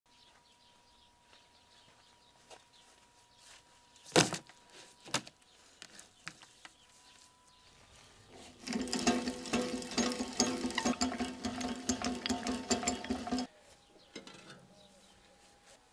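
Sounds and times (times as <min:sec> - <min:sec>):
drive chain rattling and clicking: 0:08.6 - 0:13.5.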